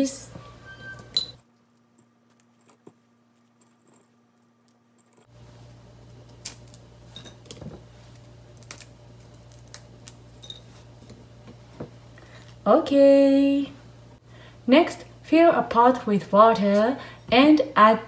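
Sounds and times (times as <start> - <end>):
low steady hum: 0.0 - 18.0
dry crackles of fish snapped apart: 6.3 - 6.8, 8.6 - 10.2.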